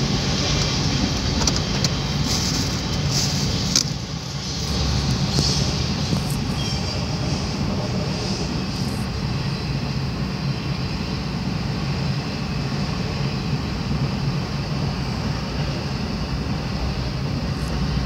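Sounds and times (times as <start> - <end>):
train rumbling past: 0.0 - 18.0.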